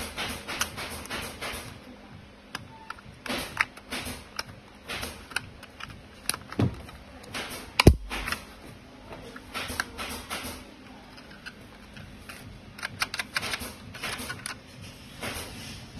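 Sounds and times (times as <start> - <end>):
plastic clicks and rattles: 3.3 - 8.4, 11.1 - 14.6.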